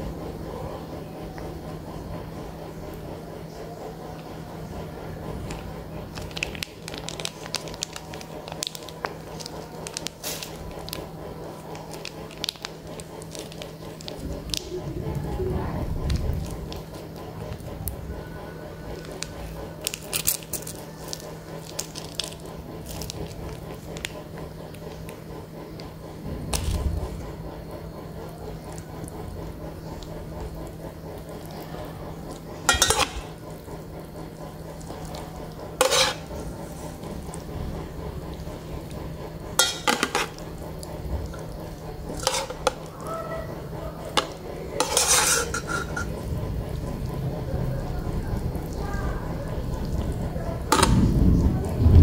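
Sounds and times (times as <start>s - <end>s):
metal spoon scraping a pot: 32.7s - 33.4s, 35.8s - 36.4s, 39.6s - 40.4s, 42.1s - 43.0s, 44.1s - 46.2s.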